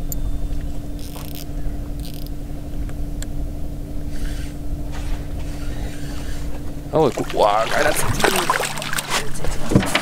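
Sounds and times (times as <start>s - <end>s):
boat motor humming: 0.0s - 10.0s
fishing reel cranking: 1.0s - 2.3s.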